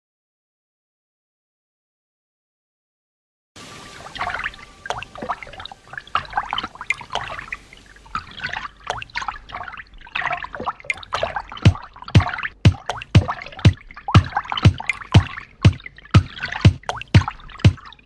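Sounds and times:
pool water splashing: 3.6s - 18.0s
thumping music beat: 11.1s - 18.0s.

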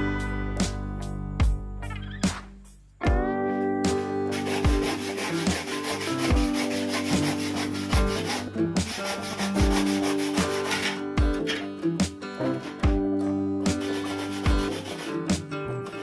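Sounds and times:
background music with steady beat: 0.0s - 16.0s
hand saw cutting concrete block: 4.3s - 11.7s, 13.7s - 15.4s.

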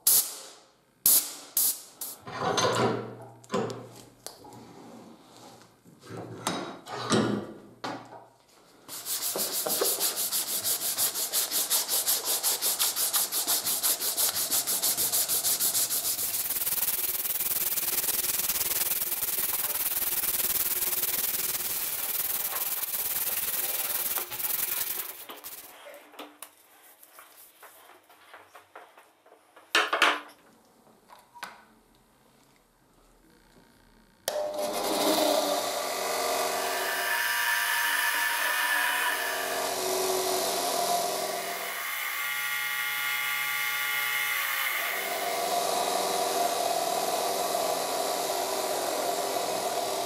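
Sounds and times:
hand sanding wooden handle: 8.9s - 25.8s.

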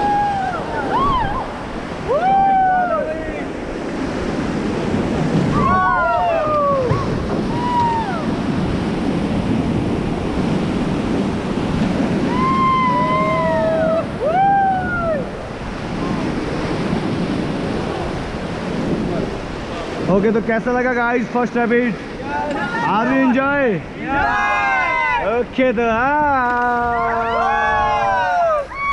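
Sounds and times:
people whooping: 0.0s - 3.5s, 5.5s - 8.4s, 12.2s - 15.4s, 24.1s - 25.3s, 26.5s - 28.9s
whitewater rushing and splashing: 0.0s - 28.9s.

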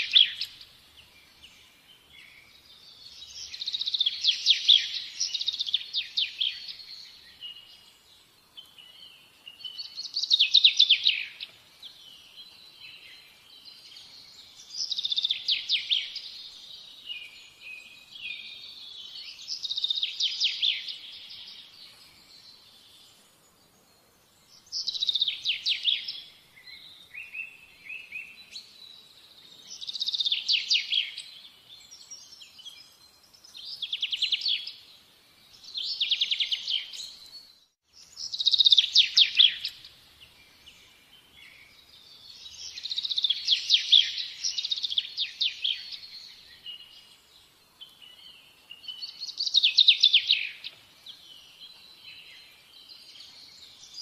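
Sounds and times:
songbird trilling: 0.0s - 0.6s, 38.1s - 39.9s.

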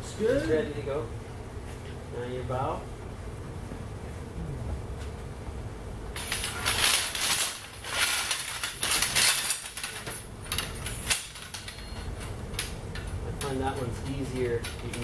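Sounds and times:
metal tubes clinking and rattling: 6.2s - 15.0s.

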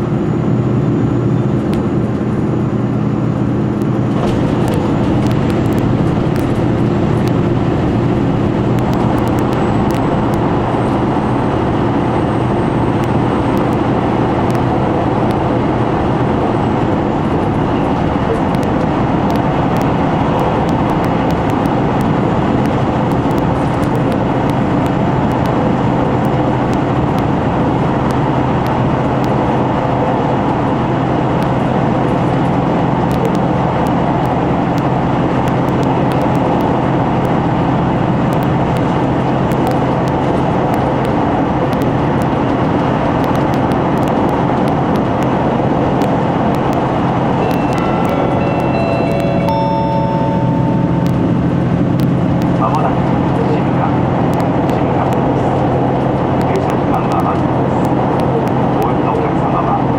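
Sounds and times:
steady low hum: 0.0s - 59.9s
train rumbling through tunnel: 0.0s - 59.9s.

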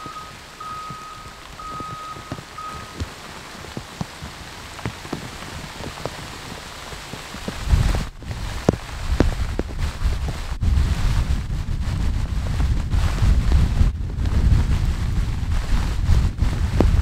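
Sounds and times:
high beep: 0.0s - 3.1s
raindrops ticking: 0.0s - 17.0s
steady rain: 0.0s - 17.0s
wind buffeting microphone: 0.0s - 17.0s.

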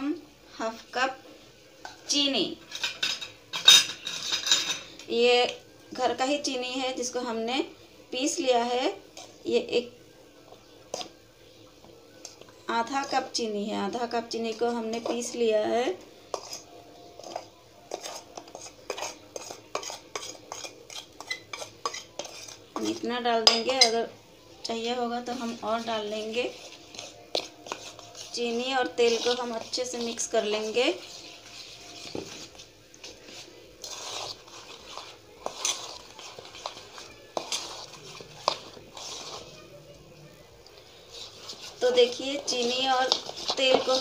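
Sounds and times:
spoon scraping metal bowl: 2.6s - 5.0s, 10.9s - 11.1s, 12.3s - 13.4s, 16.3s - 24.0s, 25.2s - 39.7s, 40.7s - 44.0s.

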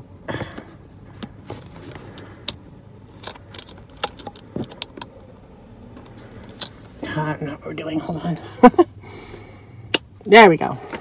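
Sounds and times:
car cabin hum: 0.0s - 9.0s
binder rings clicking: 2.4s - 5.2s.

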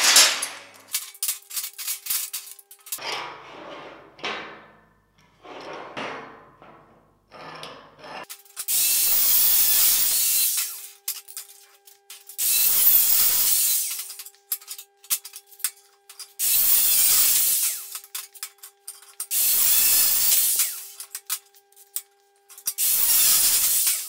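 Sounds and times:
clamp sliding and scraping: 1.6s - 8.3s.

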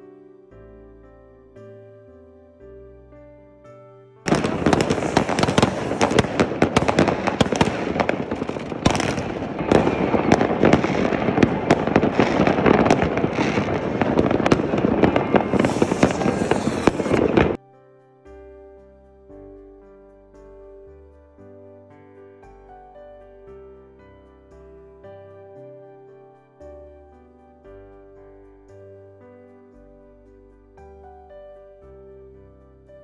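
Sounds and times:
soft piano music: 0.0s - 33.0s
fireworks banging and crackling: 4.3s - 17.6s.

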